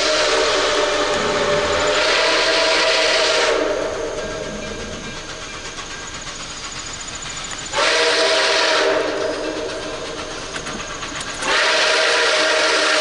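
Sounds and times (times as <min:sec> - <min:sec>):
steam whistle chord: 0:00.0 - 0:04.9, 0:07.7 - 0:09.7, 0:11.4 - 0:13.0
locomotive running noise: 0:00.0 - 0:13.0.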